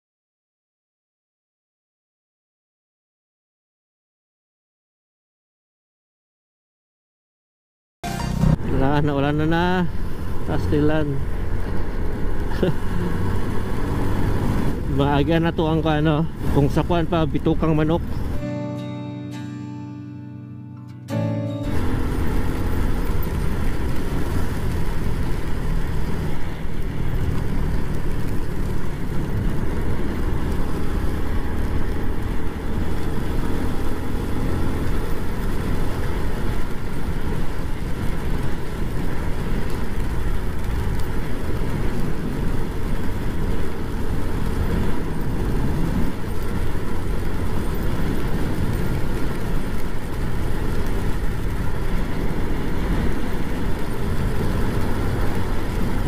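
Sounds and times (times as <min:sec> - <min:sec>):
motorcycle running: 0:08.0 - 0:18.4, 0:21.4 - 0:56.0
tyres on wet road: 0:08.0 - 0:18.5, 0:21.2 - 0:56.0.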